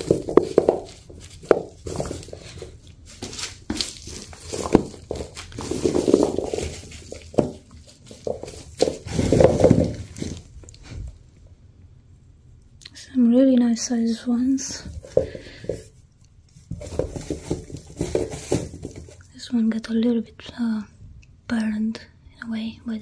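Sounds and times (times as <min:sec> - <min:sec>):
potatoes knocking on hard surface: 0:00.0 - 0:10.5, 0:14.8 - 0:15.9, 0:16.7 - 0:19.2
rustling: 0:00.0 - 0:11.3, 0:14.6 - 0:19.5.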